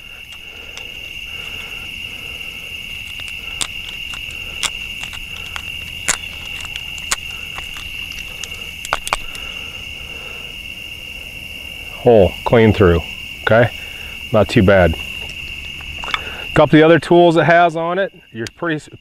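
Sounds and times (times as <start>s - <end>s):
awl clicking and creaking in wood: 0.0s - 9.8s, 15.2s - 16.4s
high insect trill: 0.0s - 19.0s.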